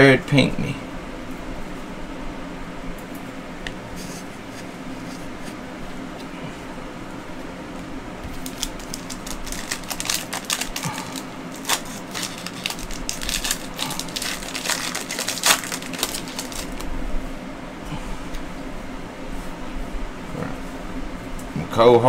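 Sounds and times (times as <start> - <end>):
plastic wrapper crinkling and tearing: 8.3 - 16.9.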